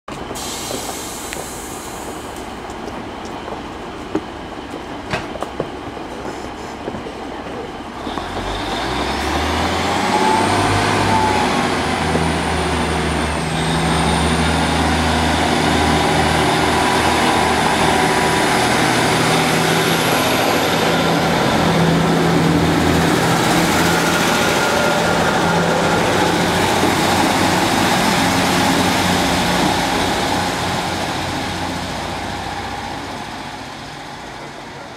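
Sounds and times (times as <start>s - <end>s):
diesel train idling: 0.1s - 34.9s
diesel engines pulling away: 8.0s - 34.9s.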